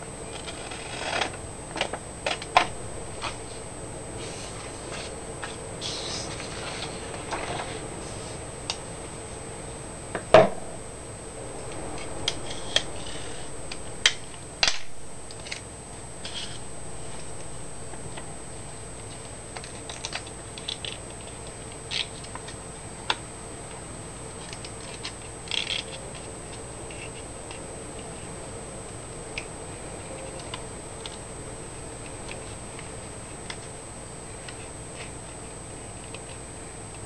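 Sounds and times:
faint high whine: 0.0 - 22.4.

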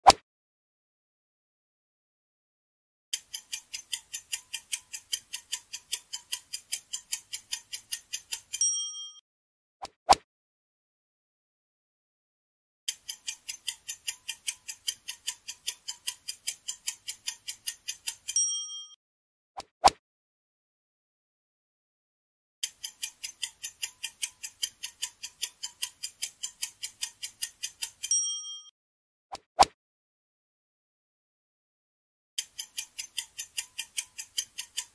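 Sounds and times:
clock-like ticking: 3.2 - 9.2, 12.9 - 19.0, 22.6 - 28.7, 32.4 - 34.9
short ringing chime: 28.1 - 28.7.

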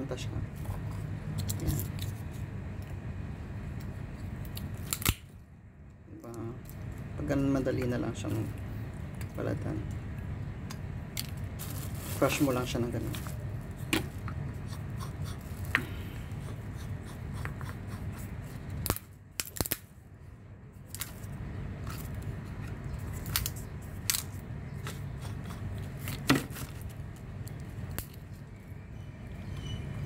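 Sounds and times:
air conditioner hum: 0.0 - 30.0
nutcracker cracking walnuts: 3.8 - 5.4, 8.4 - 11.5, 18.7 - 19.9, 20.8 - 28.3.

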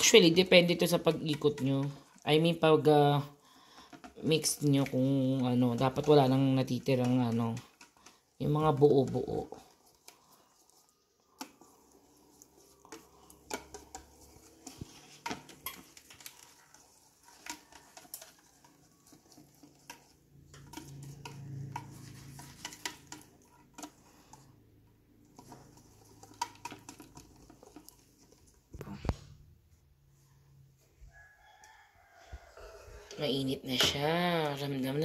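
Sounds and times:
whisk tapping against bowl: 0.0 - 3.2, 3.8 - 24.4, 25.2 - 28.5
wet stirring of batter: 0.0 - 35.0.

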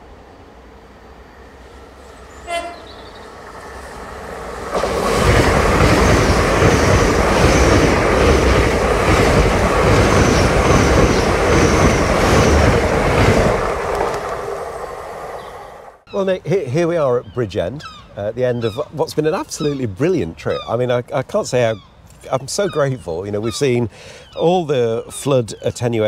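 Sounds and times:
train rushing past: 0.0 - 16.1
wheel-on-rail noise: 1.2 - 16.1
train horn blast: 2.3 - 3.2.

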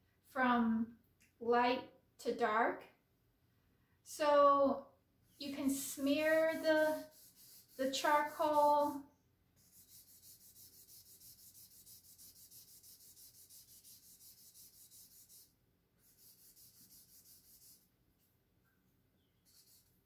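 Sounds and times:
paper stub rubbing on paper: 5.4 - 9.0, 9.6 - 17.9, 19.4 - 20.0.

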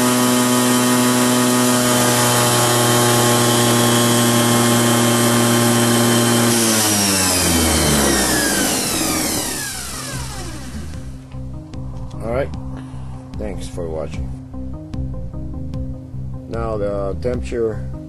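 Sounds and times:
electric motor whine: 0.0 - 11.5.

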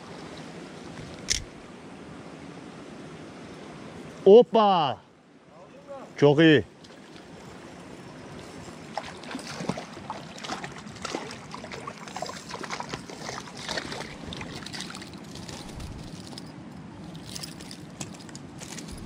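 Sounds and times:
creek water trickling over stones: 6.7 - 19.0
fish splashing: 8.9 - 15.1.

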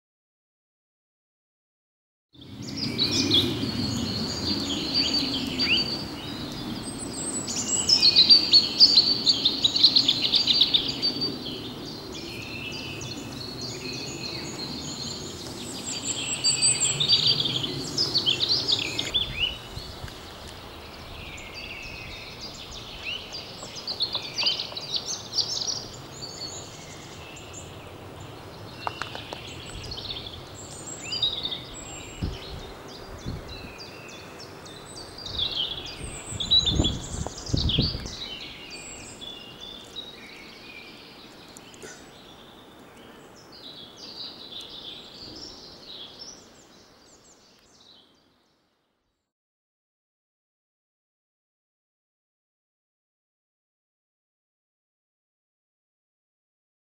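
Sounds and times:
small birds singing: 2.4 - 49.3.

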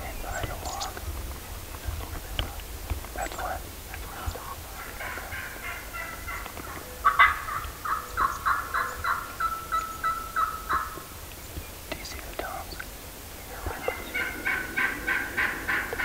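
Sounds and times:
wild turkey gobbling: 2.3 - 11.3, 13.5 - 16.0.

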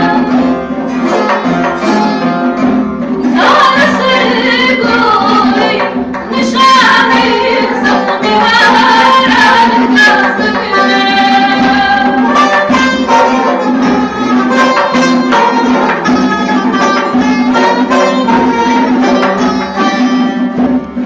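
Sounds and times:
frame drum beat: 0.0 - 21.0
oud and lute plucked: 0.0 - 21.0
woman singing: 3.2 - 13.0.

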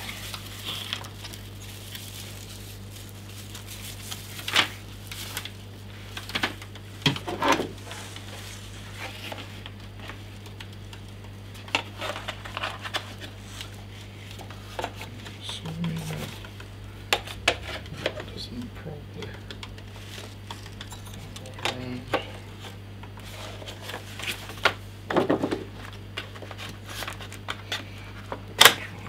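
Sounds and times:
plastic packaging rustling: 0.0 - 24.9, 25.6 - 28.5
steady low hum: 0.0 - 29.0.

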